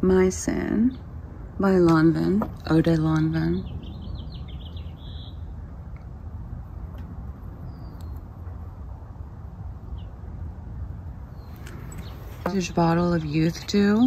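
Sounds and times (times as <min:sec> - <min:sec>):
steady low rumble: 0:00.0 - 0:14.0
high bird chirps: 0:03.6 - 0:05.5.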